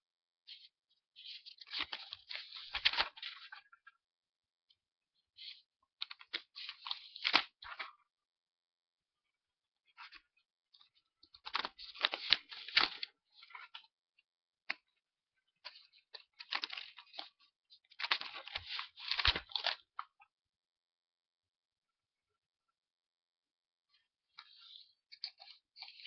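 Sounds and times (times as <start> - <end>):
paper cards rustling and scraping: 0.5 - 3.8, 5.4 - 7.9, 11.3 - 13.9, 15.6 - 20.0, 24.4 - 26.0.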